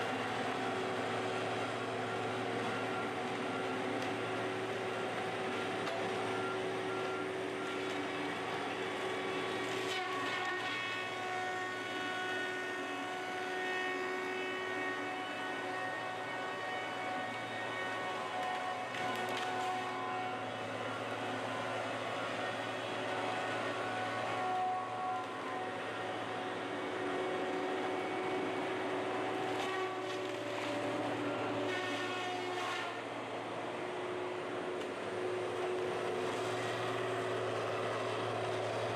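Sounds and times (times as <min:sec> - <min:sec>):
heavy machine engine and hydraulics: 0:00.0 - 0:38.9
bamboo crackle: 0:18.0 - 0:20.3, 0:29.3 - 0:32.8.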